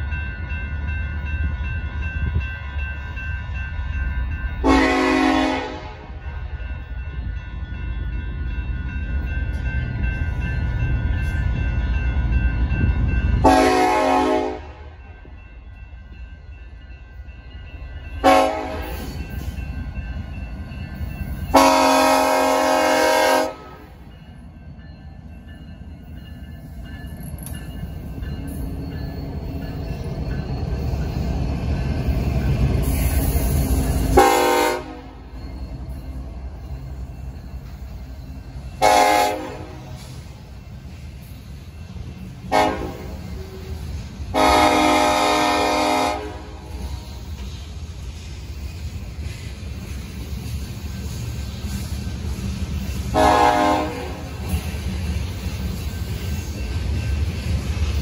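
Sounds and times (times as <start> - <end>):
diesel locomotives rumbling: 0.0 - 58.0
locomotive air horn: 4.6 - 6.2, 13.4 - 15.0, 18.2 - 19.0, 21.5 - 23.9, 34.2 - 35.2, 38.8 - 39.9, 42.5 - 43.2, 44.3 - 46.8, 53.1 - 54.3.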